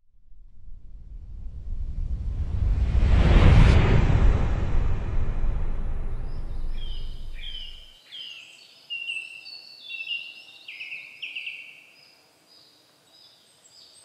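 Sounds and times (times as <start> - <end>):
low rumble: 0.0 - 7.9
songbirds singing: 6.7 - 14.0.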